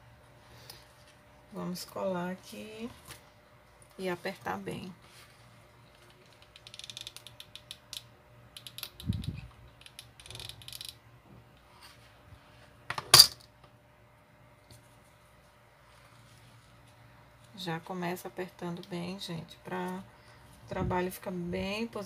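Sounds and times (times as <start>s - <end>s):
glue gun trigger ratcheting clicks: 6.4s - 11.0s.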